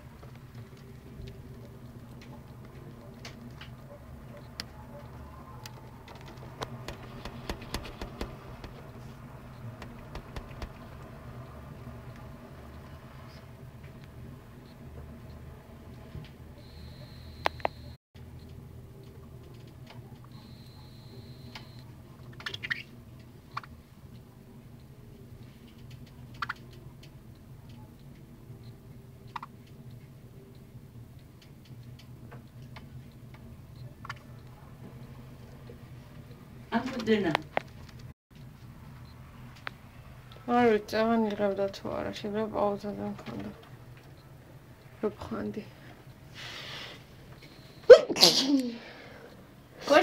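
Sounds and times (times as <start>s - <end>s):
steady low hum: 0.0s - 48.0s
beak tapping on mirror: 6.6s - 8.8s, 9.8s - 11.0s.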